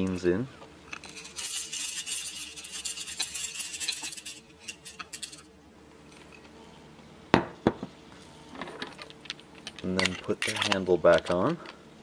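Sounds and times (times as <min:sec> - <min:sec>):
coffee beans rattling on metal: 0:01.1 - 0:05.4.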